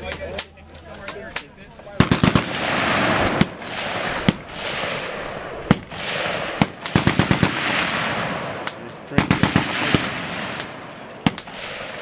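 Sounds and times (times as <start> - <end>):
automatic gunfire burst: 2.0 - 8.5, 9.2 - 12.0
single gunshots: 2.0 - 12.0.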